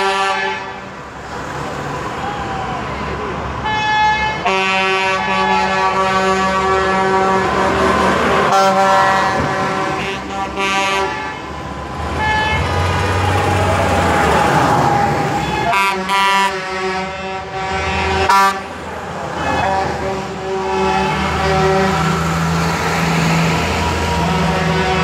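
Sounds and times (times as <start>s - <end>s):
vehicle horn blasts: 0.0s - 0.8s, 3.6s - 7.8s, 8.5s - 11.5s, 12.2s - 12.7s, 15.4s - 18.7s, 19.4s - 22.0s
engines rumbling: 0.0s - 25.0s.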